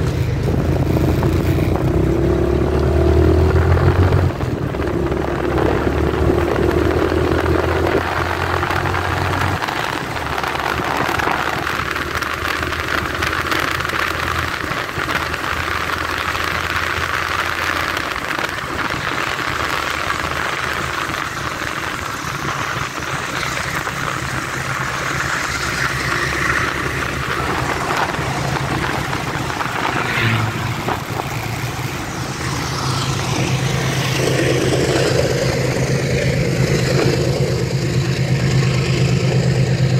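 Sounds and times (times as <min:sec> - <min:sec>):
motorcycle engine: 0:00.0 - 0:39.9
tyres on wet road: 0:00.0 - 0:39.9
wind noise: 0:00.0 - 0:39.9.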